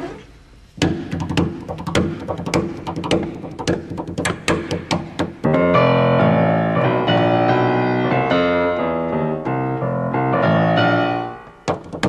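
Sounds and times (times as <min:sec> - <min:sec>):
sharp knocks: 0:00.8 - 0:05.6, 0:11.5 - 0:12.0
grand piano chords and melody: 0:04.7 - 0:12.0.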